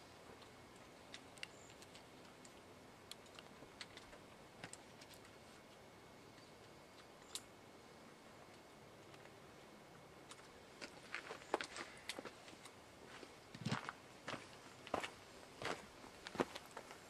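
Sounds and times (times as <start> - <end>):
small irregular clicks and ticks: 0.2 - 7.6, 8.3 - 9.4, 10.2 - 12.8.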